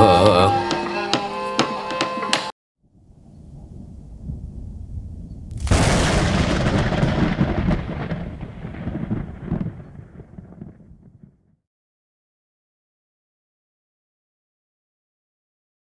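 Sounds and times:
thunder rumbling and cracking: 0:02.9 - 0:11.6.

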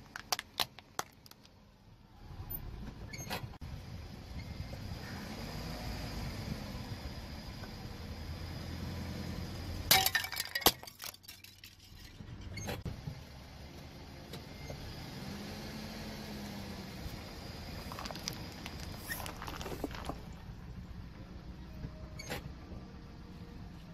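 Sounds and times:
plastic cups crunching under tyre: 0:00.0 - 0:01.6, 0:09.9 - 0:12.0, 0:17.7 - 0:20.4
small plastic cracks: 0:00.0 - 0:01.6
car engine running low: 0:01.2 - 0:09.9, 0:12.0 - 0:23.9.

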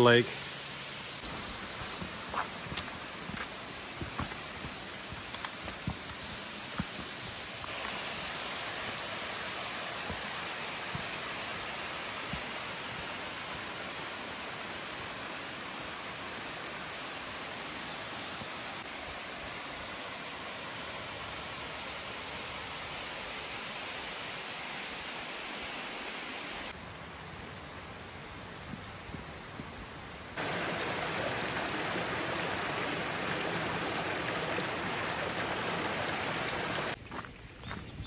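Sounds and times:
footsteps on dirt: 0:01.2 - 0:08.2, 0:10.0 - 0:11.2, 0:37.0 - 0:37.9
stream rushing over rocks: 0:01.2 - 0:26.8, 0:30.4 - 0:37.0.

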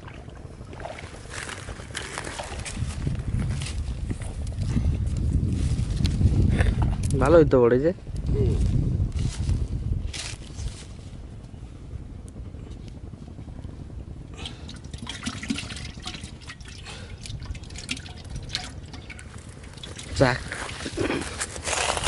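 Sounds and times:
steady low rumble: 0:00.0 - 0:22.0
water splashing and dripping: 0:14.9 - 0:20.4.

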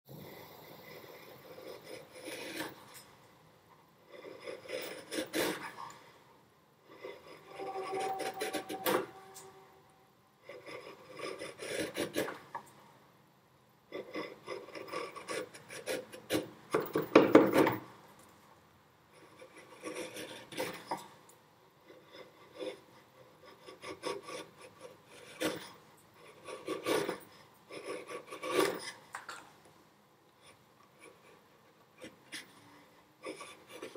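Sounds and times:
chisel paring wood: 0:14.0 - 0:17.9.

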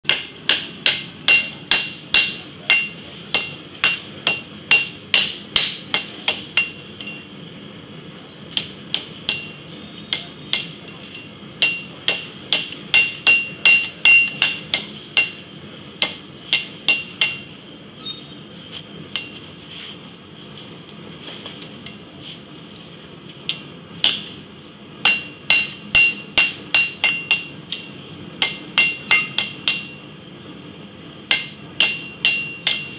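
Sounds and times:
hammer striking hot metal pipe: 0:00.1 - 0:07.3, 0:08.5 - 0:17.6, 0:19.1 - 0:19.4, 0:23.5 - 0:24.4, 0:25.0 - 0:30.1, 0:31.3 - 0:32.9.

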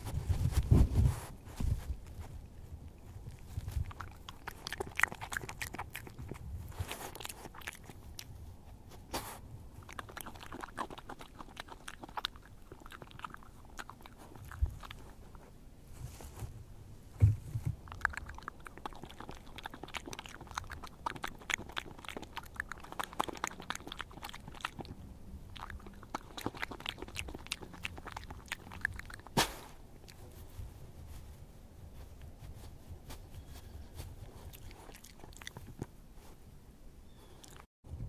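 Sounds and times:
animal crunching food: 0:00.0 - 0:15.5, 0:17.2 - 0:30.6, 0:33.3 - 0:36.3, 0:37.1 - 0:37.7
loud snap: 0:29.4 - 0:29.8.

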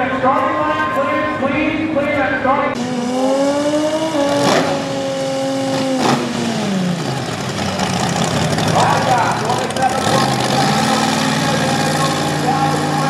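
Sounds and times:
car engine at high revs: 0:02.8 - 0:13.0
lumpy engine idle: 0:07.1 - 0:13.0.

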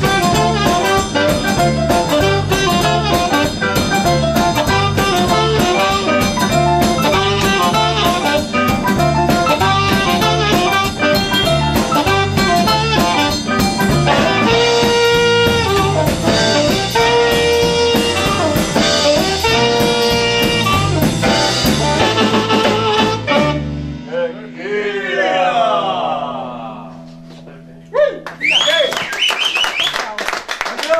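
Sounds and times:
saxophone riff: 0:00.0 - 0:24.1
swing band playing: 0:00.0 - 0:24.5.

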